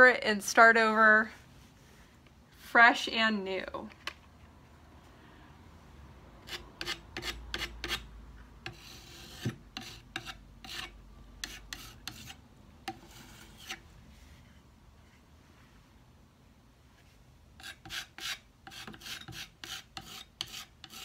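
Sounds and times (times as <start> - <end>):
putty knife scraping wood: 6.4 - 13.8, 17.6 - 21.0.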